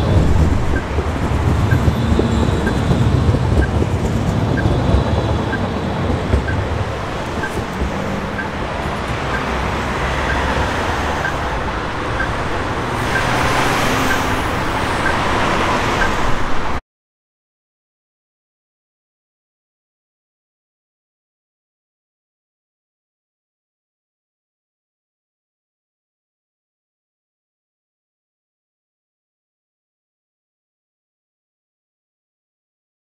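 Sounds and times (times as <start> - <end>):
crossing signal ticking: 0.0 - 16.8
street traffic noise: 0.0 - 16.8
tram moving off: 0.0 - 16.8
vehicle passing: 0.0 - 16.8.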